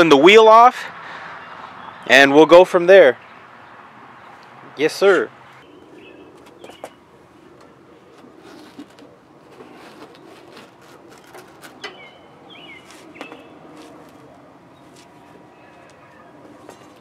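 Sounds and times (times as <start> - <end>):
bird chirps: 5.5 - 7.0, 11.8 - 13.7.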